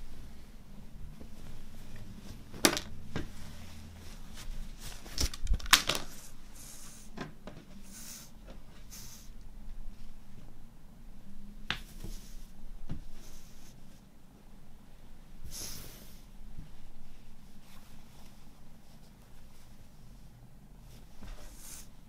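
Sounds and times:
fabric rustling: 0.0 - 6.6, 16.5 - 22.0.

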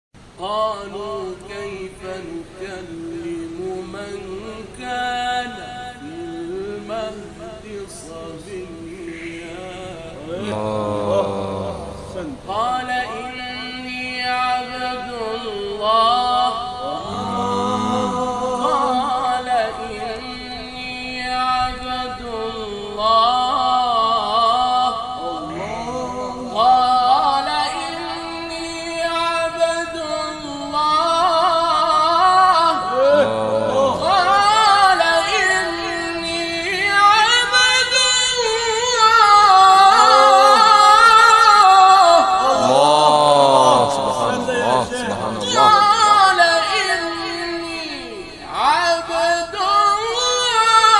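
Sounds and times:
man reciting melodically: 0.2 - 50.9.

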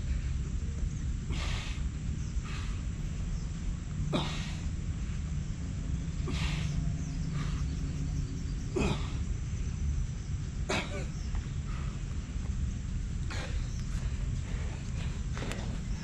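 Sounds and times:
steady low rumble: 0.0 - 16.0
man exhaling forcefully: 1.3 - 2.8, 4.1 - 4.7, 6.2 - 6.8.

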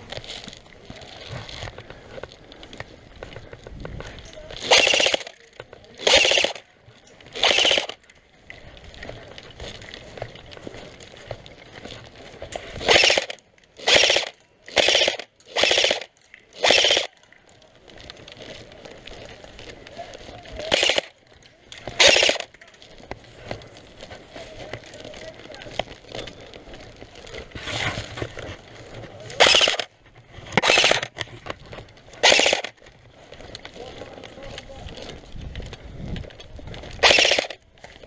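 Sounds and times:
airsoft gun firing bursts: 4.6 - 5.4, 6.0 - 6.6, 7.3 - 8.0, 12.8 - 17.2, 20.6 - 21.2, 21.9 - 22.6, 29.4 - 29.9, 30.5 - 31.2, 32.2 - 32.8, 37.0 - 37.6.

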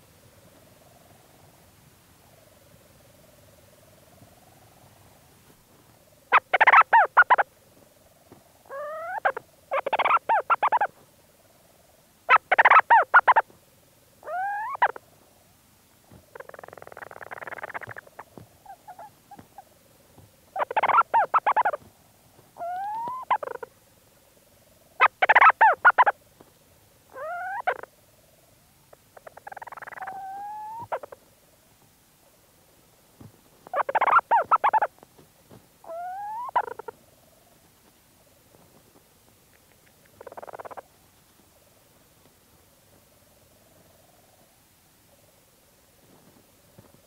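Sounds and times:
faint bird purr: 0.0 - 47.0
rustling in burrow: 14.2 - 23.8, 33.1 - 44.6, 45.2 - 47.0
bird stuttering chatter: 33.8 - 34.9.

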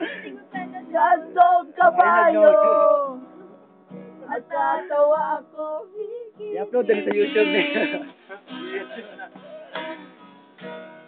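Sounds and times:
voices singing: 0.0 - 3.4, 4.2 - 9.2
strummed acoustic guitar: 0.0 - 11.0.

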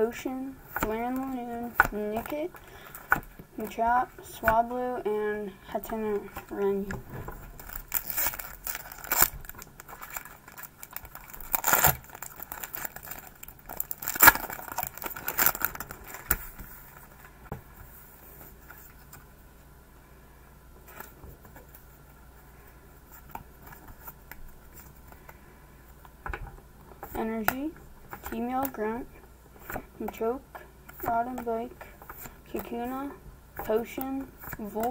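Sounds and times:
foil pack ripping: 7.6 - 16.4
wrapper crinkling: 7.6 - 16.6.

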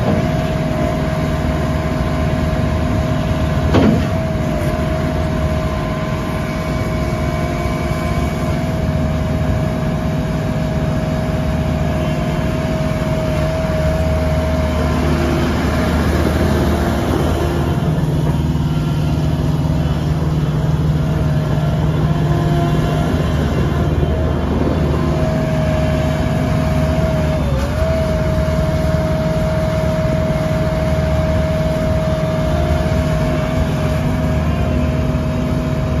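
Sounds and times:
diesel engine running: 0.0 - 36.0
steady high whine: 0.0 - 36.0.

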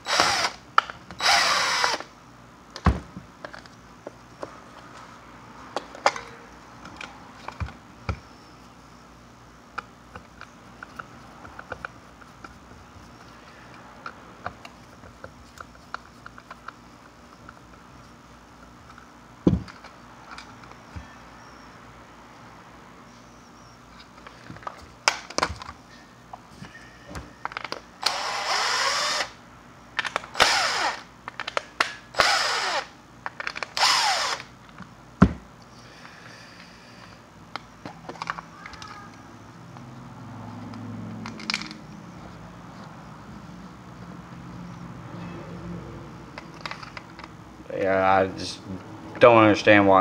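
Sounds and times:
cordless driver motor winding: 0.0 - 2.1, 28.0 - 29.4, 30.3 - 31.1, 32.1 - 32.9, 33.6 - 34.5
handling clicks and knocks: 40.6 - 41.9.

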